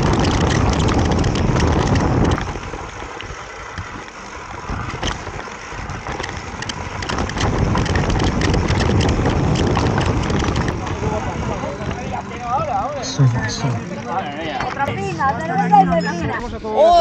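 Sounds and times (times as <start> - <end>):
bike rattling over stones: 0.0 - 12.7
wind buffeting microphone: 0.0 - 13.0.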